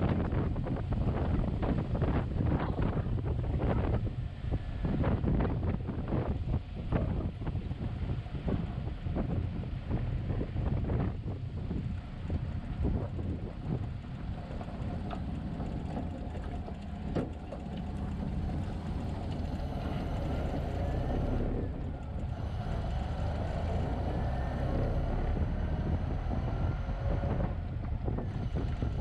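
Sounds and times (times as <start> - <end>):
wind and road noise: 0.0 - 29.0
car engine running: 9.2 - 29.0.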